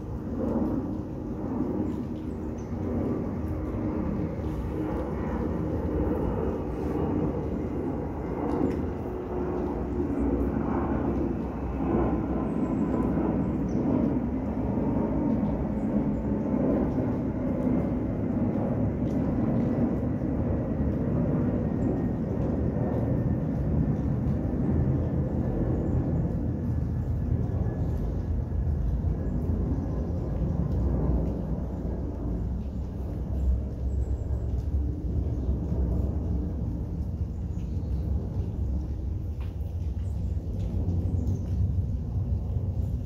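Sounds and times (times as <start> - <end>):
steady rain in woodland: 0.0 - 43.0.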